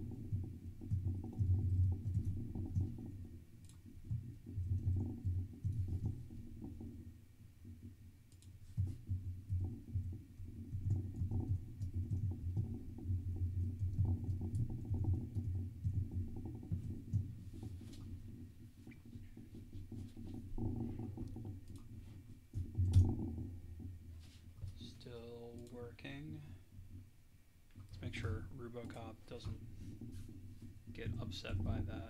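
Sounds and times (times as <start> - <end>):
computer keyboard typing: 0.0 - 6.8.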